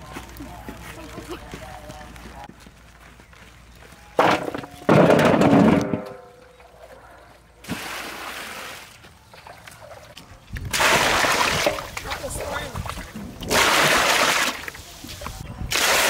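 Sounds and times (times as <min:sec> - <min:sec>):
water splashing: 0:07.6 - 0:10.1, 0:10.7 - 0:16.0.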